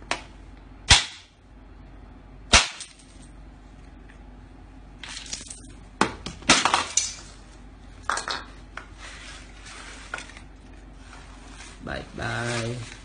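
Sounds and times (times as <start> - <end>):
clay piggy bank cracking and smashing: 6.0 - 7.2.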